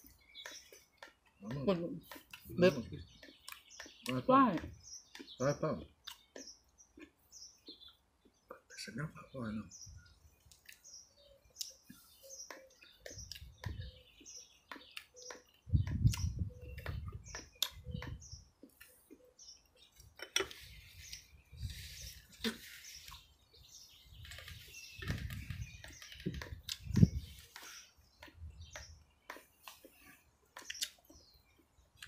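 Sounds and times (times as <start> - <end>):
small birds chirping: 0.0 - 32.0
dull low thumps: 15.6 - 18.4, 25.0 - 27.3.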